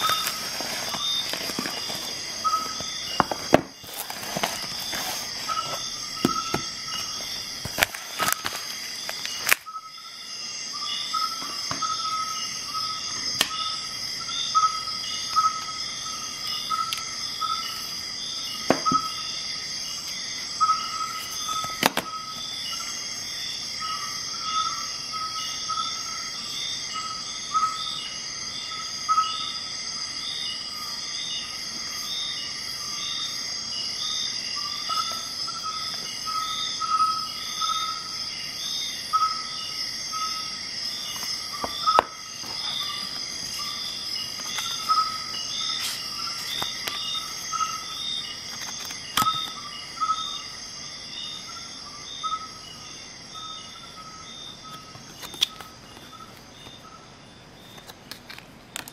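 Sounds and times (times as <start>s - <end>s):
cardboard packaging handled: 0.0s - 9.7s, 41.1s - 47.1s
high insect trill: 0.0s - 57.8s
insects chirping: 0.0s - 58.9s.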